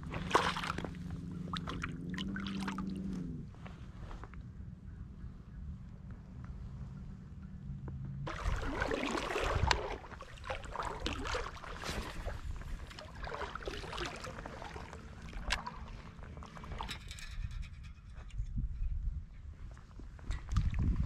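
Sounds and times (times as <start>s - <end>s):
water splashing and sloshing: 0.0s - 3.8s, 8.2s - 17.6s, 20.2s - 21.0s
steady low rumble: 0.0s - 21.0s.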